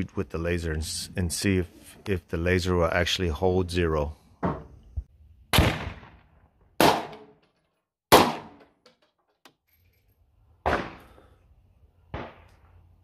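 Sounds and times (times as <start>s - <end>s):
rifle shots: 5.5s - 7.4s, 8.1s - 8.6s.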